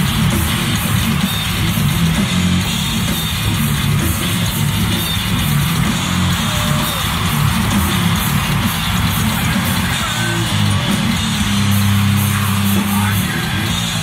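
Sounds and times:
heavy metal music: 0.0 - 14.0.

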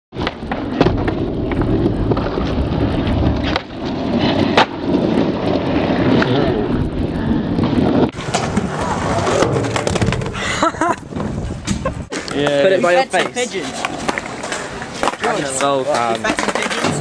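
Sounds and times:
skateboard wheels rolling on concrete: 0.1 - 17.0
skateboard clacking on ground: 8.1 - 17.0.

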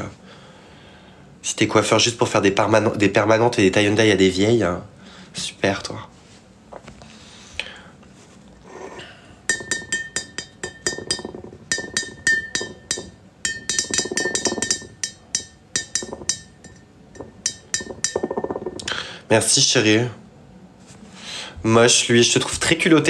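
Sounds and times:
steady ringing tone: 9.4 - 18.9
hard object clinking: 9.5 - 19.0.

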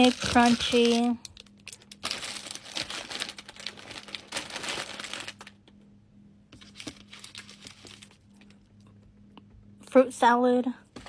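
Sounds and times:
plastic wrappers crinkling: 0.0 - 5.7, 6.6 - 8.6.

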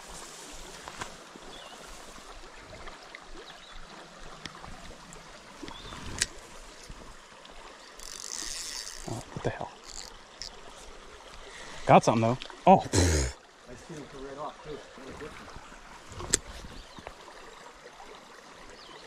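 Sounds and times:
fishing reel hiss and rustle: 0.0 - 2.4, 5.6 - 11.8
creek trickling over rocks: 0.0 - 19.0.

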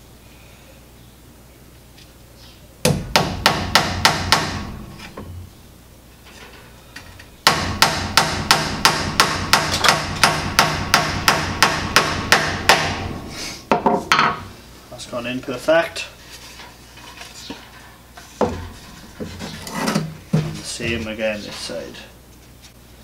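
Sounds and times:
hammer driving a nail into wood: 2.8 - 4.7, 7.5 - 13.1.

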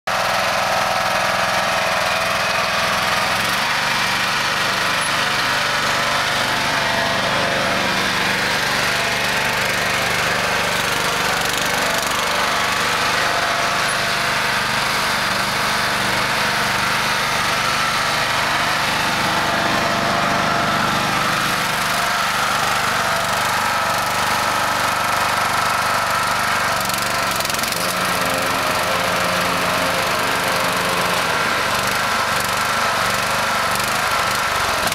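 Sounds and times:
riding lawn mower engine running: 0.1 - 34.9.

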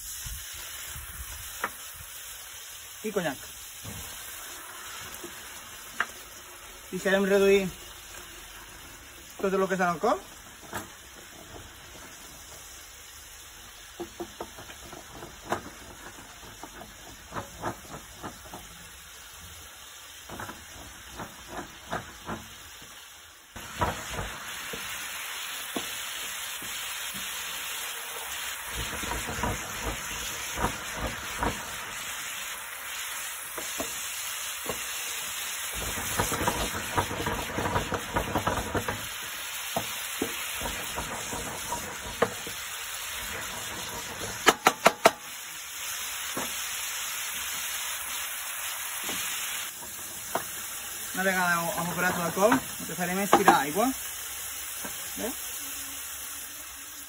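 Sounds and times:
sauce sizzling in a pan: 0.0 - 57.0
wooden spoon scraping and tapping pan: 5.1 - 6.2, 13.9 - 18.7, 20.3 - 22.5, 28.8 - 31.8, 33.6 - 34.0, 35.8 - 45.2, 49.1 - 50.6, 51.6 - 53.8.

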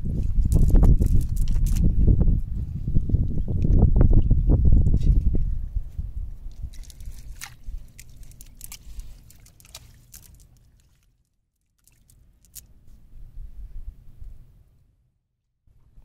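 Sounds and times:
wet net crackling and squishing on sand: 0.4 - 1.9, 6.5 - 12.7.

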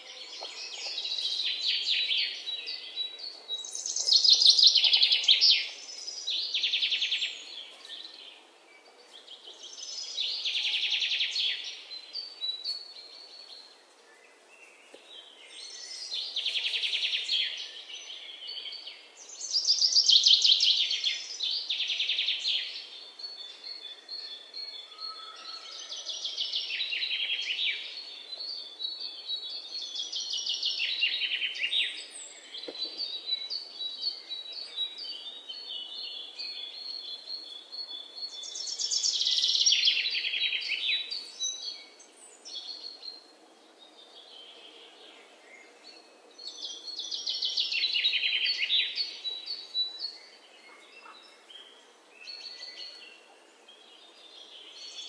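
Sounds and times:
birds singing trills and chirps: 0.0 - 55.0.

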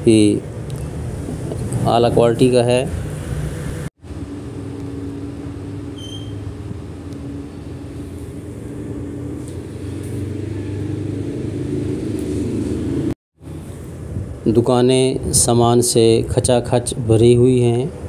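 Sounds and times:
short high electronic beep: 6.0 - 6.4.

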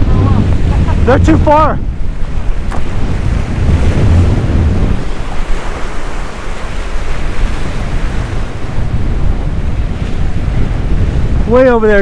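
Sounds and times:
waves breaking against rocks: 0.0 - 12.0
wind buffeting microphone: 0.0 - 12.0.

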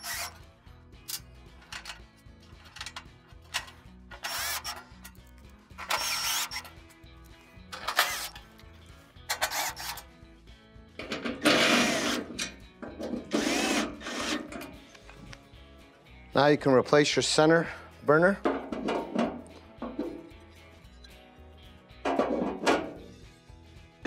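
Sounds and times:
cordless drill driving screws: 4.2 - 4.8, 5.8 - 6.7, 11.6 - 12.3, 13.3 - 14.4.

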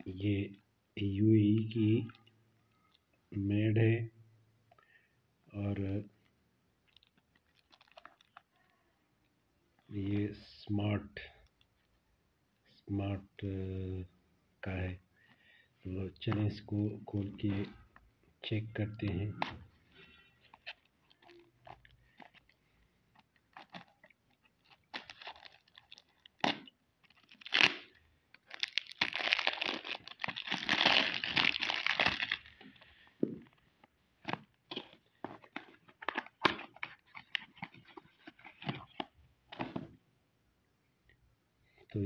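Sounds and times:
plastic film crinkling and tearing: 6.9 - 8.5, 20.1 - 32.6.

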